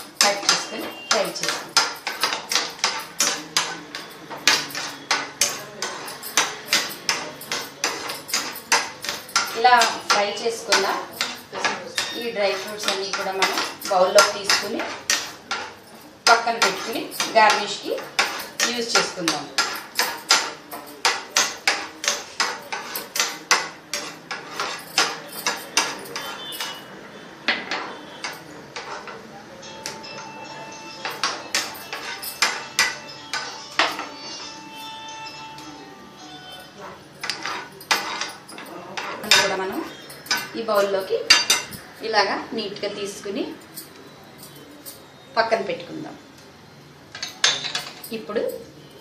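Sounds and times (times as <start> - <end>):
spoon knocking and scraping pan: 0.0 - 26.8, 27.5 - 29.2, 31.0 - 34.5, 36.8 - 41.8.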